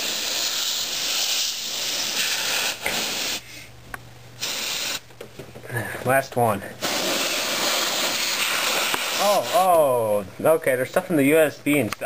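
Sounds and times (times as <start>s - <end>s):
compressed air spray hiss: 0.0s - 3.7s, 4.4s - 5.0s, 6.8s - 9.8s.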